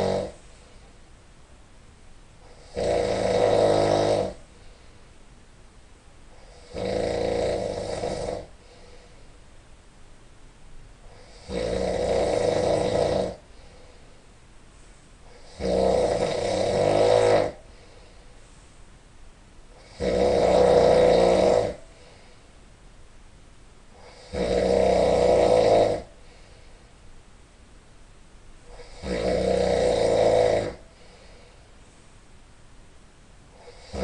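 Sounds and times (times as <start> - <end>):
person snoring: 0.0 - 0.5, 2.4 - 4.5, 6.3 - 9.1, 11.0 - 14.0, 15.2 - 18.2, 19.7 - 22.4, 23.9 - 26.6, 28.7 - 31.6, 33.5 - 34.0.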